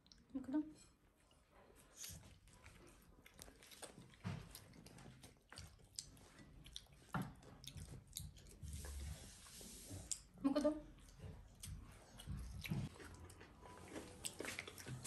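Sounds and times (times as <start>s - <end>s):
children chewing: 1.0s - 15.0s.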